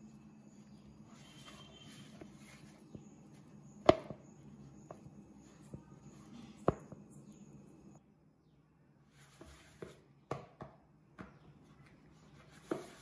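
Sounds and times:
hands kneading dough: 0:00.0 - 0:07.6, 0:09.1 - 0:13.0.

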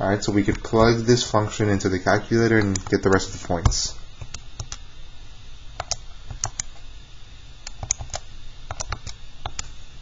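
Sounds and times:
calculator keys clicking: 0:07.7 - 0:09.7.

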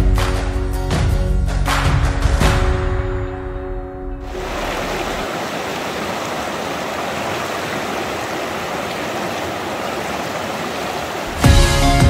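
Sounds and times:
background music: 0:00.0 - 0:04.3, 0:11.3 - 0:12.0
flowing water rushing: 0:04.2 - 0:11.6.

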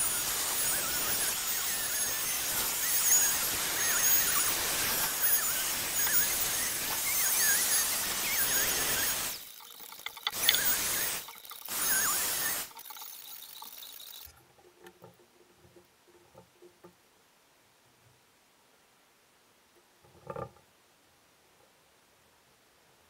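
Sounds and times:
router cutting wood: 0:00.0 - 0:12.8.

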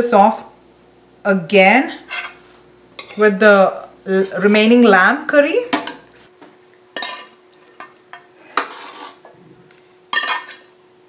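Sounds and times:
metal spoon scraping a pot: 0:02.0 - 0:03.3, 0:07.0 - 0:09.3, 0:10.1 - 0:10.7.

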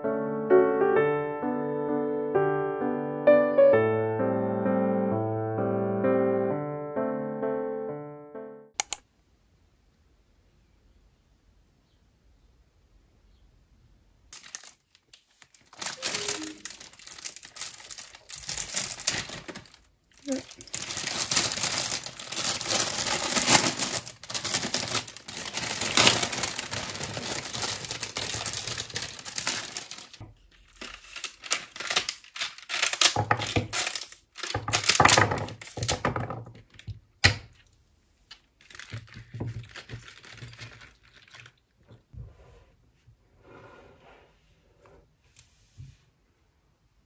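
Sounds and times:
sharp click: 0:08.8 - 0:09.0
plastic sleeve crinkling and tearing: 0:14.3 - 0:36.9, 0:38.3 - 0:41.6
handling sounds: 0:14.4 - 0:37.7, 0:38.3 - 0:41.5.

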